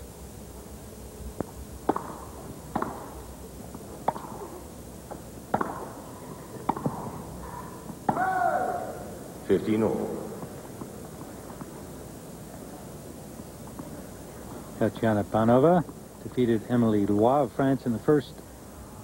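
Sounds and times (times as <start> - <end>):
tennis ball hit with rackets: 1.9 - 3.2, 4.0 - 4.6, 5.5 - 6.0, 6.6 - 7.2, 8.1 - 8.4.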